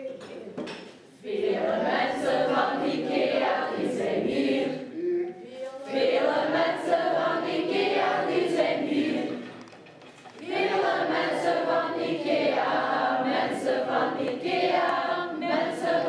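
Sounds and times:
group singing in unison: 0:01.2 - 0:05.0, 0:05.8 - 0:09.7, 0:10.4 - 0:16.0.

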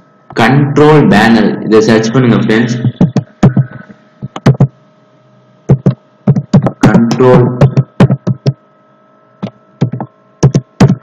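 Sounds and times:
faint electrical hum: 0:00.0 - 0:11.0
laptop keyboard typing: 0:03.0 - 0:04.7, 0:05.7 - 0:06.9, 0:07.6 - 0:08.6, 0:09.8 - 0:11.0.

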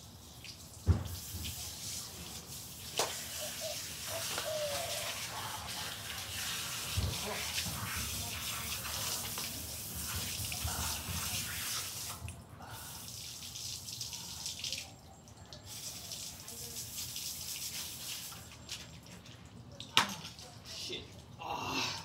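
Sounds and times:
hose nozzle spraying water: 0:00.5 - 0:12.2.

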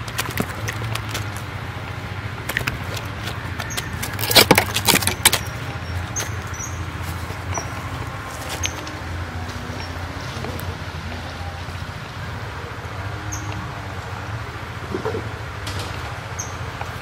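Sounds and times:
fish flapping on dry leaves: 0:00.0 - 0:09.1.

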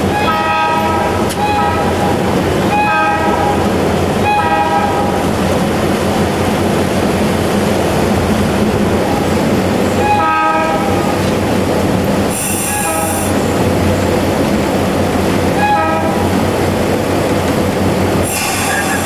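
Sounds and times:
locomotive horn blasts: 0:00.0 - 0:05.2, 0:10.0 - 0:11.2, 0:12.4 - 0:13.4, 0:15.5 - 0:16.3
diesel locomotive engine running: 0:00.0 - 0:19.0.

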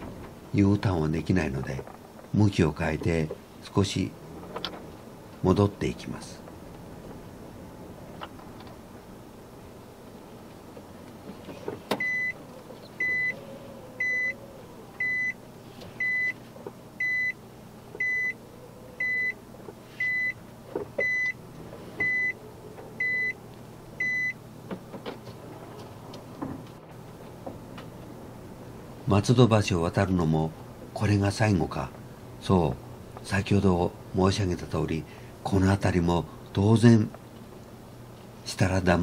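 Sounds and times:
low car hum: 0:00.0 - 0:34.2
reverse warning beeps: 0:12.0 - 0:12.4, 0:13.0 - 0:13.4, 0:14.0 - 0:14.4, 0:15.0 - 0:15.4, 0:16.0 - 0:16.4, 0:17.0 - 0:17.4, 0:18.0 - 0:18.4, 0:19.0 - 0:19.4, 0:20.0 - 0:20.4, 0:21.0 - 0:21.4, 0:22.0 - 0:22.4, 0:23.0 - 0:23.4, 0:24.0 - 0:24.4.

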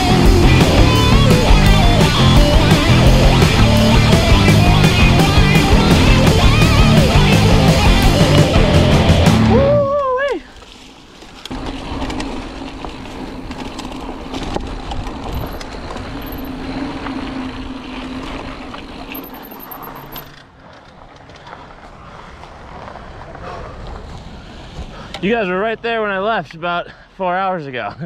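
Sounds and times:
bike tyres rolling on gravel: 0:09.9 - 0:26.6
wind noise: 0:13.1 - 0:16.5.

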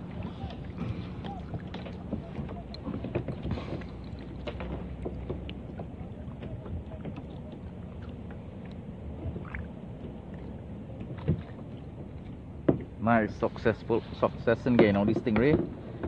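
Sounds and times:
wind and water rush: 0:00.0 - 0:16.0
light knocks and clicks: 0:14.7 - 0:16.0.

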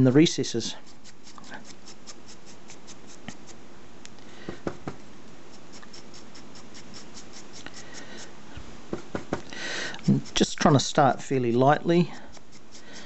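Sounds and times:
paintbrush scrubbing on plastic palette: 0:00.6 - 0:03.6, 0:05.5 - 0:08.3, 0:09.9 - 0:11.0, 0:12.1 - 0:13.0.

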